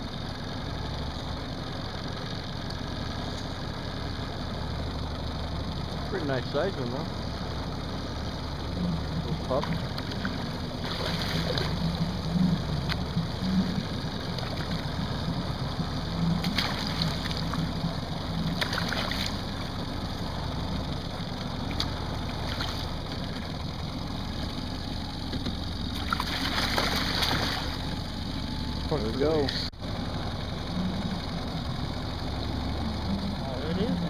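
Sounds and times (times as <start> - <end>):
boat motor humming: 0.0 - 34.0
fish splashing at surface: 9.7 - 11.8, 16.4 - 17.6, 18.6 - 19.5, 26.0 - 27.8.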